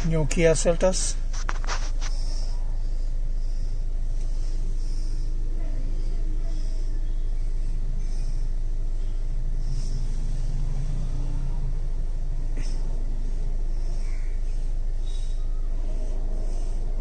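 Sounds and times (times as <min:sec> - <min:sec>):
diesel engine idling: 0:00.0 - 0:17.0.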